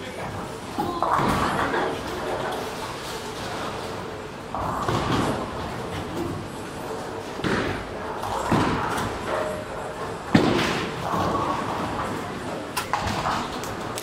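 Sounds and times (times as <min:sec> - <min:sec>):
bowling balls thudding: 0:00.9 - 0:14.0.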